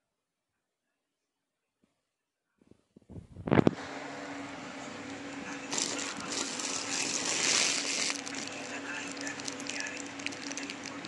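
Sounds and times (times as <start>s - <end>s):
steady low hum: 3.0s - 11.0s
plastic wrappers crinkling: 5.6s - 11.0s.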